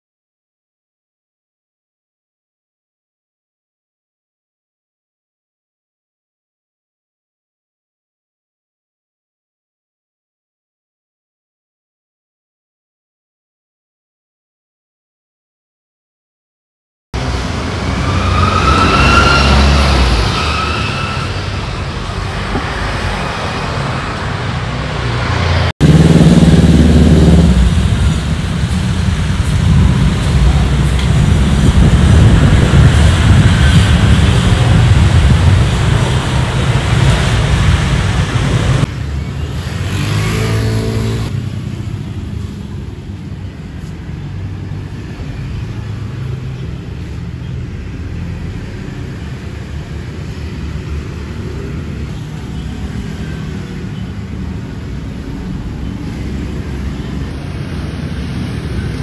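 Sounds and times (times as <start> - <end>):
vehicles passing: 17.2 - 59.0.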